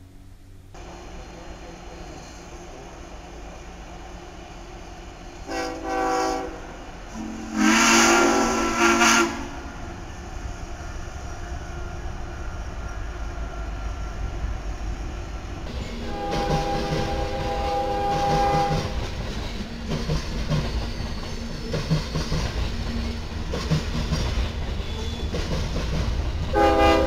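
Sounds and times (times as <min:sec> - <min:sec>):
train rumble: 0:00.0 - 0:27.0
locomotive air horn: 0:05.4 - 0:09.8, 0:16.0 - 0:19.0, 0:26.5 - 0:27.0.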